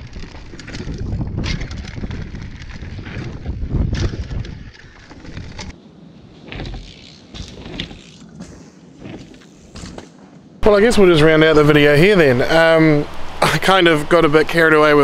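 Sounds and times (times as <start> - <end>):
mountain bike rumble and rattle: 0.0 - 10.5
bike tyres and frame clicking: 0.0 - 10.6.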